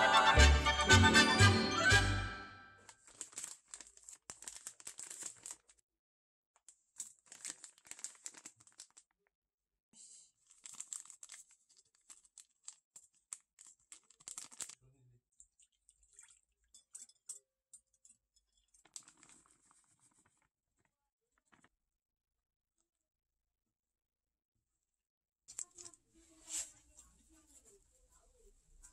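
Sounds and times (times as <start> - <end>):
foil pouches crinkling: 2.9 - 5.8, 6.7 - 9.2, 10.3 - 14.8, 18.7 - 21.7, 25.5 - 27.1.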